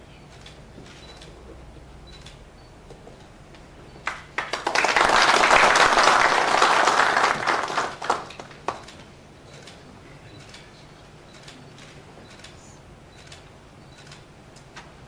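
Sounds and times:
group of people applauding: 4.0s - 9.0s.

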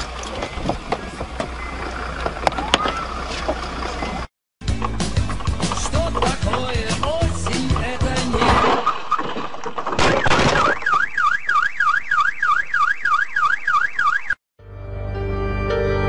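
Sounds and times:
music: 4.6s - 8.4s, 14.6s - 16.0s
electronic alarm siren wailing: 10.2s - 14.4s.

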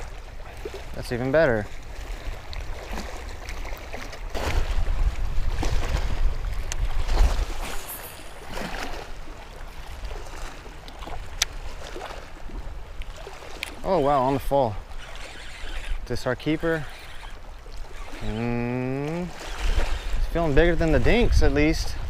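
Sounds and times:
waves lapping against rocks: 0.0s - 22.0s
wind buffeting microphone: 1.9s - 13.0s, 19.4s - 22.0s.

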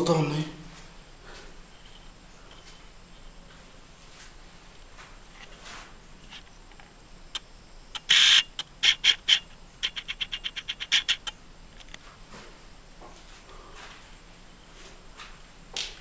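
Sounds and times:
animal rasping call: 8.0s - 11.3s
animal chirps and chattering: 8.0s - 11.4s.

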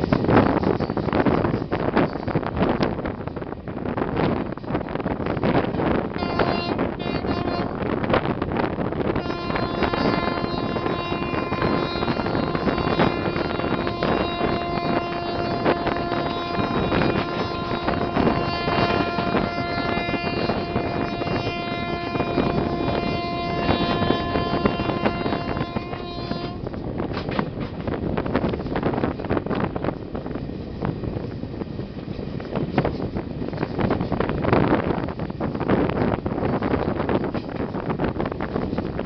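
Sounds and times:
train wheels clattering on rails: 0.0s - 39.0s
wind on microphone: 0.0s - 39.0s
locomotive air horn: 6.1s - 8.0s, 9.1s - 26.7s.

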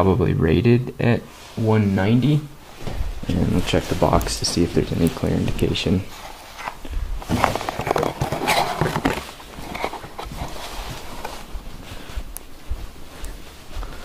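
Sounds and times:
cardboard box being handled: 6.1s - 11.8s.

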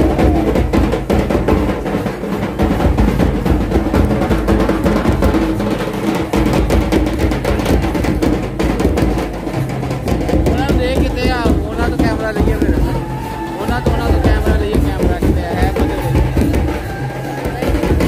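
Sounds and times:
drum strokes: 0.0s - 18.0s.

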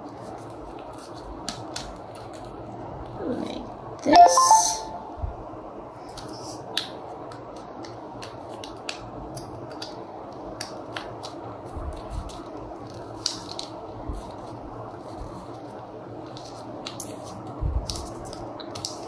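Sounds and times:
paper being folded and creased: 10.6s - 19.0s.

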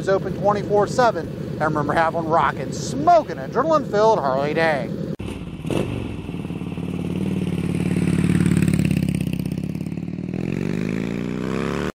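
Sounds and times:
motorcycle engine revving: 4.9s - 12.0s.

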